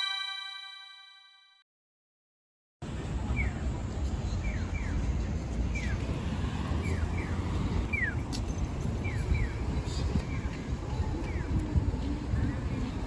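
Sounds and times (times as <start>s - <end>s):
crossing signal electronic chirps: 0.0s - 1.4s
street traffic rumble: 2.8s - 13.0s.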